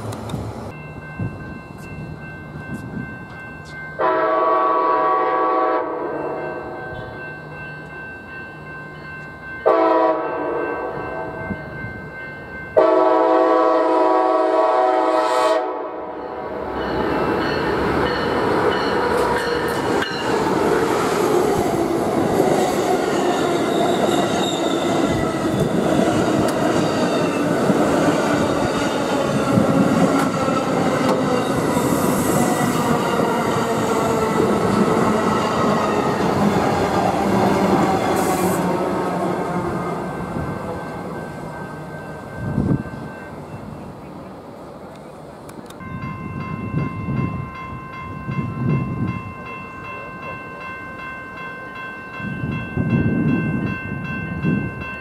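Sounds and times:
train rumbling on rails: 0.0s - 55.0s
train horn blasts: 4.0s - 7.2s, 9.6s - 11.4s, 12.8s - 16.5s.

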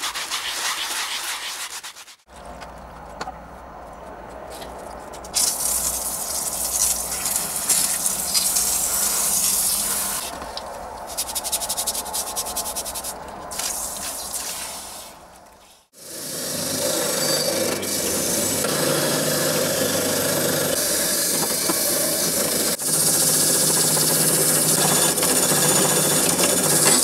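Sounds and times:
hand rubbing strokes: 0.0s - 2.3s, 11.0s - 15.9s
hose nozzle spraying water: 5.4s - 10.4s.

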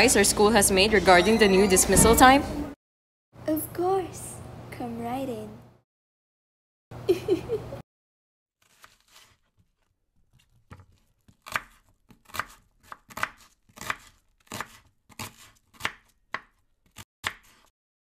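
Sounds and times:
knife chopping on cutting board: 10.4s - 17.7s.

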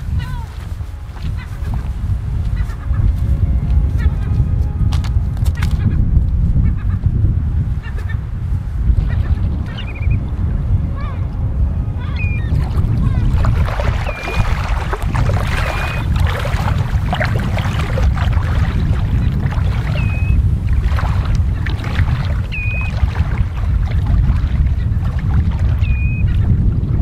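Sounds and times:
bird calling: 0.0s - 3.1s, 7.7s - 11.3s, 11.9s - 23.7s, 25.8s - 26.5s
boots sloshing through water: 0.0s - 3.3s, 12.4s - 26.6s
wind on microphone: 0.0s - 27.0s.

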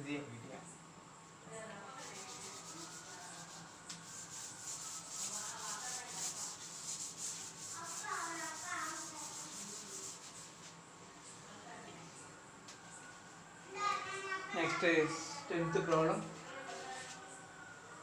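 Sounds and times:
cloth duster rubbing chalkboard: 2.0s - 10.8s.

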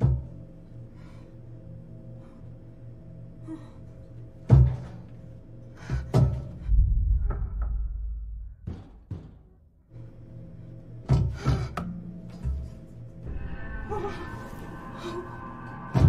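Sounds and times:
heavy thuds: 6.4s - 9.8s
low sustained drone: 6.5s - 8.7s, 13.2s - 16.0s
deep rumble: 6.5s - 9.9s
sharp knocks: 7.2s - 9.6s.

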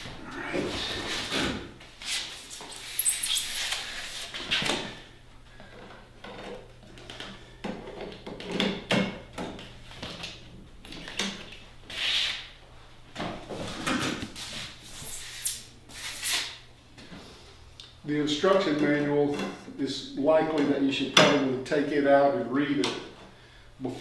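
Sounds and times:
hissy rub: 2.0s - 4.4s
short high scrapes: 2.1s - 4.3s, 14.5s - 16.5s.

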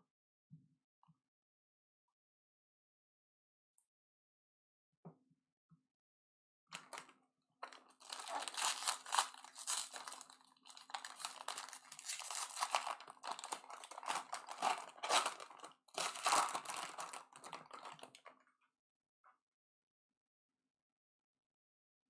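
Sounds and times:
foil wrapper crinkling and tearing: 7.6s - 18.3s.

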